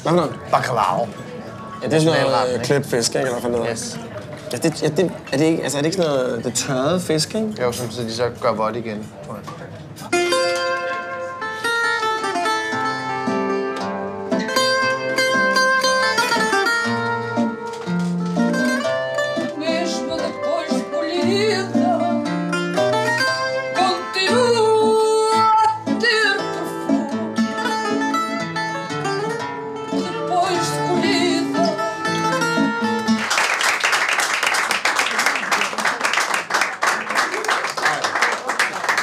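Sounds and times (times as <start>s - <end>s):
guitars playing: 10.1s - 33.3s
person singing: 23.7s - 27.6s, 29.9s - 32.2s
audience applause: 33.1s - 39.0s.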